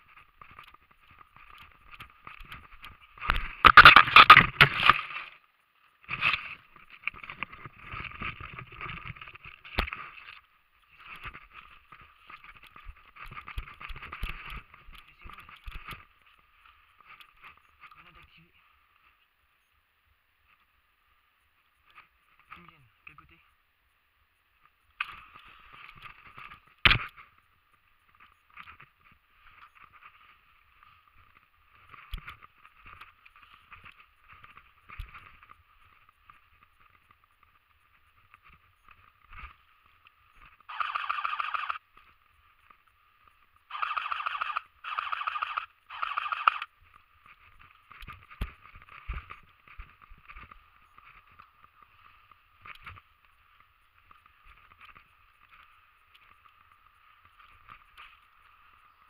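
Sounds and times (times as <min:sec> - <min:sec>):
airsoft gun full-auto bursts: 0:40.7 - 0:41.8, 0:43.7 - 0:46.7.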